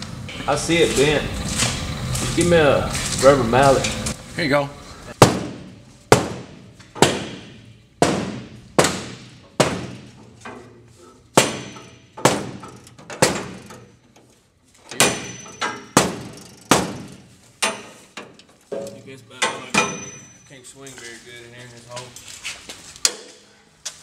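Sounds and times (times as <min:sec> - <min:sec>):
hammer striking sheet metal: 0:05.2 - 0:10.3, 0:11.3 - 0:13.7, 0:15.0 - 0:18.0.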